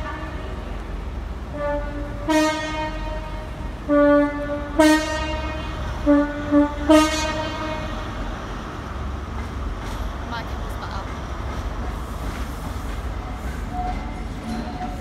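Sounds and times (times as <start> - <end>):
train horn blasts: 0.0 - 0.8, 1.5 - 8.3
low rumble of trains: 0.0 - 15.0.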